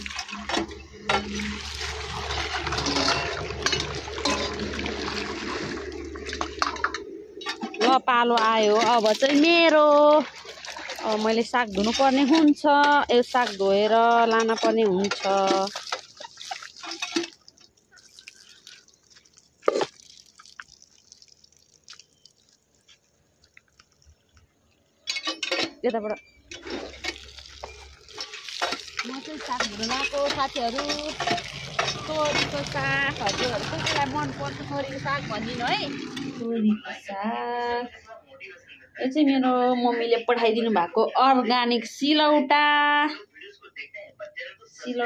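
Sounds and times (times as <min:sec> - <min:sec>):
tap water running and splashing: 0:00.0 - 0:24.5, 0:26.5 - 0:36.4.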